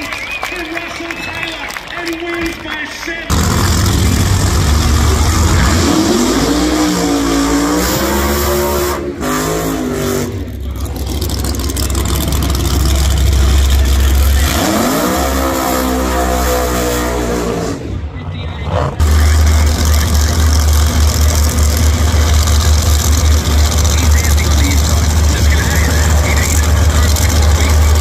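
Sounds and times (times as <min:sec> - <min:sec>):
racing engines revving: 0:03.2 - 0:28.0.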